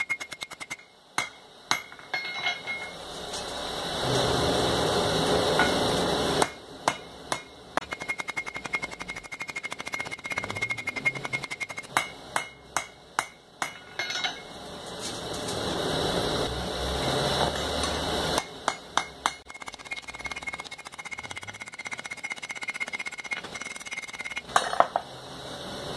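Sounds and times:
hammer striking anvil: 0:00.0 - 0:03.0, 0:05.6 - 0:14.6, 0:17.4 - 0:25.0.

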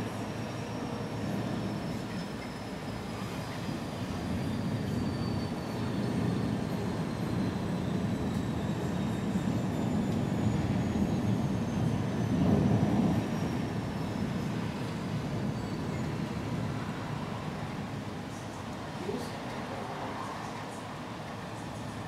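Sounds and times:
distant thunder rolling: 0:10.6 - 0:16.8.

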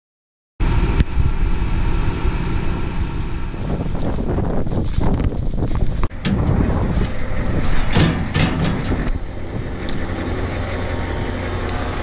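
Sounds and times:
vehicle engine rumble: 0:00.6 - 0:12.0
wind buffeting microphone: 0:00.6 - 0:12.0.

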